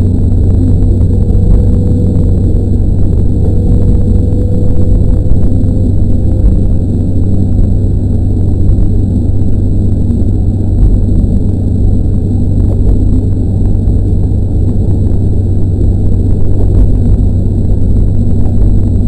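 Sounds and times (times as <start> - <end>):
diesel engine drone: 0.0 - 19.0
wheels rumbling on rails: 0.0 - 19.0.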